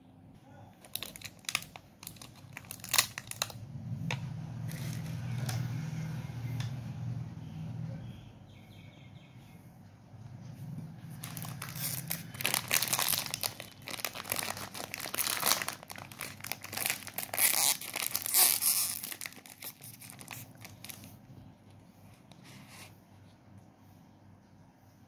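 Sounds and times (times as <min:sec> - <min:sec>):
paper and plastic crinkling: 0:00.8 - 0:03.6, 0:04.6 - 0:05.6, 0:11.1 - 0:21.3.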